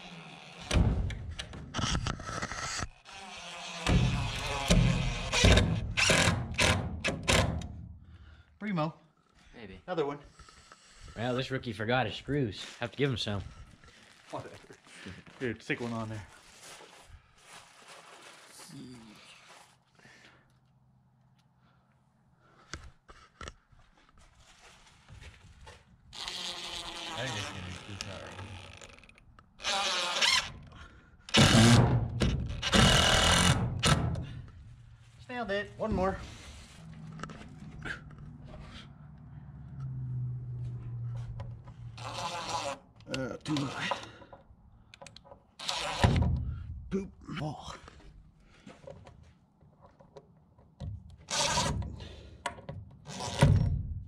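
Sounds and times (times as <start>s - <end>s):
cordless driver driving screws: 0.1s - 7.7s, 28.6s - 30.7s, 31.3s - 34.3s, 45.0s - 46.2s, 51.3s - 52.0s.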